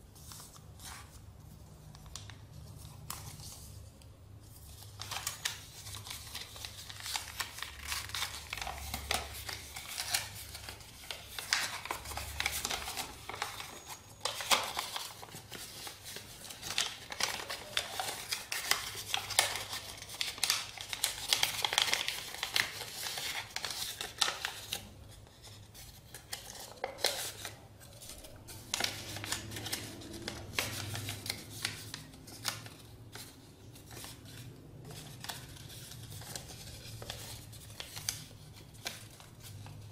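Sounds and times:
paper rustling and crinkling: 0.0s - 39.9s.

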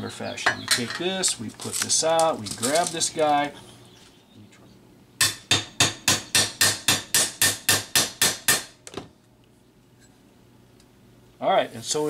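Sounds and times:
hammer striking metal rivet: 5.2s - 8.8s.

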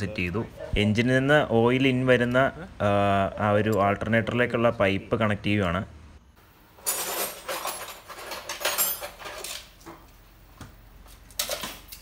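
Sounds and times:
small metal parts clinking: 6.8s - 9.8s.

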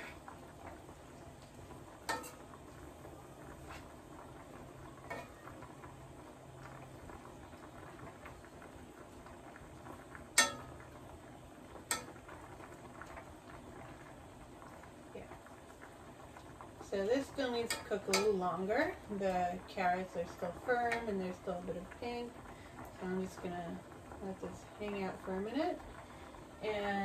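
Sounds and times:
metal spatula stirring in skillet: 0.0s - 0.4s, 2.0s - 2.8s, 3.5s - 5.9s, 10.1s - 11.0s, 11.8s - 12.5s, 17.3s - 18.5s
spatula clinking against pan: 10.4s - 10.7s.

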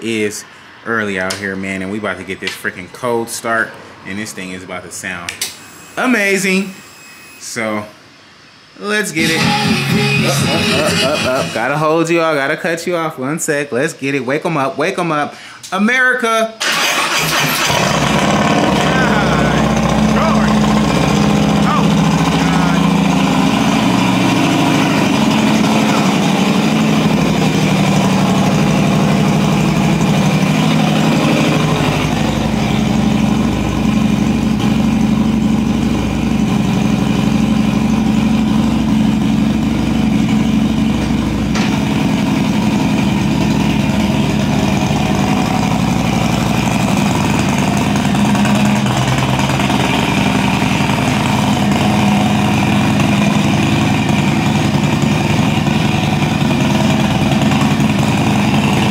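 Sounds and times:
motorcycle engine running loud: 9.2s - 11.7s, 17.3s - 58.9s.

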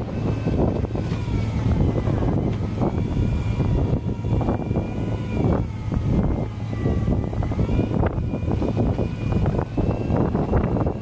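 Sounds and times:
boat engine droning: 0.0s - 11.0s
high whining tones: 0.0s - 11.0s.

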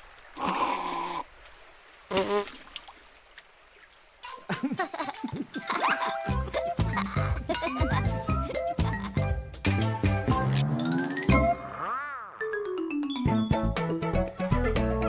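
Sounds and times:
music: 5.2s - 11.8s, 12.4s - 15.0s
bass beat: 6.3s - 11.6s.

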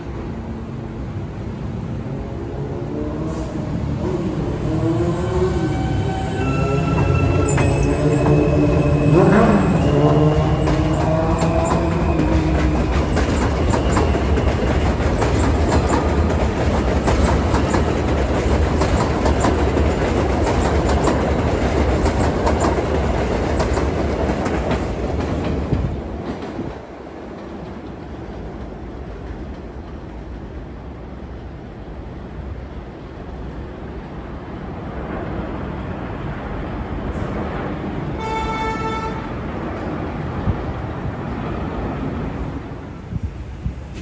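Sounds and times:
train rumbling on steel track: 0.0s - 44.0s
wheels clicking over rail joints: 9.2s - 30.2s.

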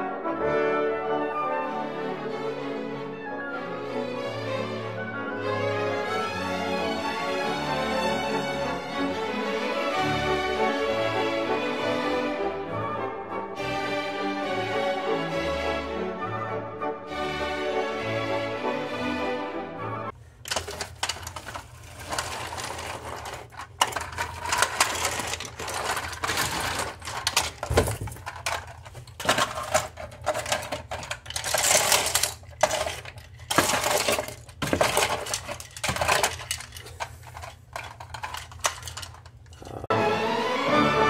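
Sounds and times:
plastic toy pieces clattering: 20.4s - 39.9s.

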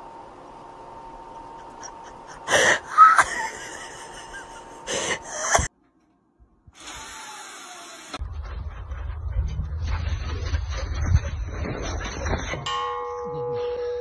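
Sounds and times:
low rumble: 8.2s - 12.5s.

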